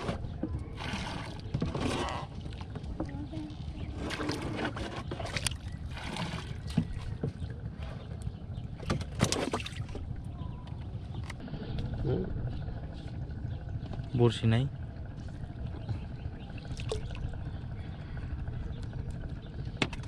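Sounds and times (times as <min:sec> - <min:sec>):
water rumbling around boat hull: 0:00.0 - 0:20.0
water splashing as it is bailed: 0:03.9 - 0:07.4, 0:08.8 - 0:10.0.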